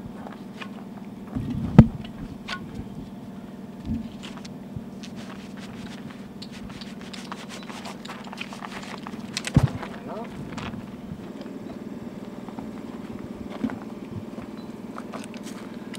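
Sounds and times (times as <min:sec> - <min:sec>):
steady low hum: 0:00.0 - 0:15.9
scuba gear clicks and rattles: 0:04.1 - 0:10.8.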